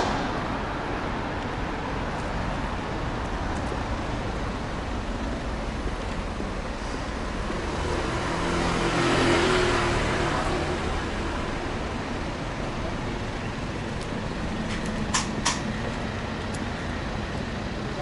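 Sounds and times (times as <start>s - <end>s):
street traffic rushing: 0.0s - 18.0s
vehicle passing close by: 6.8s - 12.1s.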